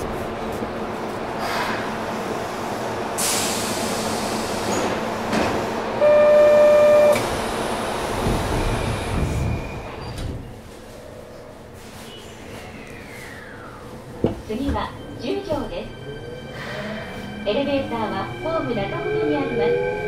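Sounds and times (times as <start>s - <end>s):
train running on rails: 0.0s - 20.0s
loud steady tone: 6.0s - 7.2s.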